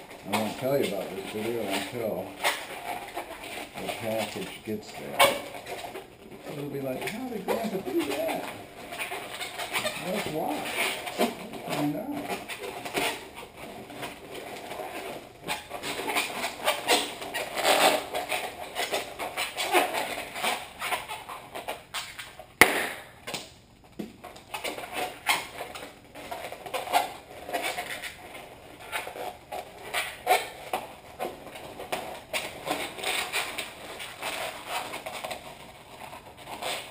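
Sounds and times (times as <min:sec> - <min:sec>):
balloon squeaking and rubbing: 0:00.0 - 0:22.4, 0:24.3 - 0:36.9
balloon snap: 0:22.6 - 0:23.5.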